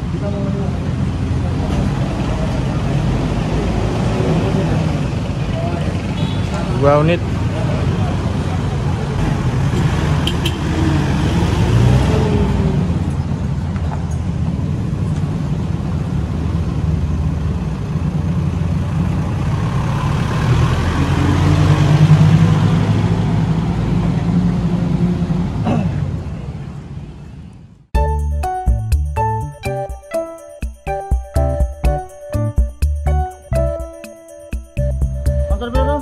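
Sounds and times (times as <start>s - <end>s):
pickup truck engines pulling away: 0.0s - 27.0s.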